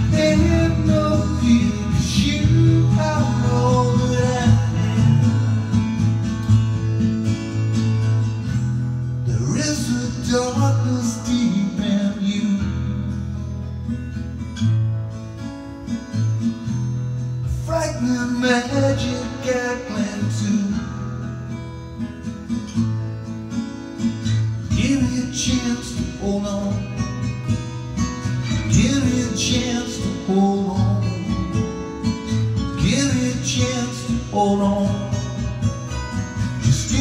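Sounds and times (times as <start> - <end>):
acoustic guitar strumming: 0.0 - 37.0.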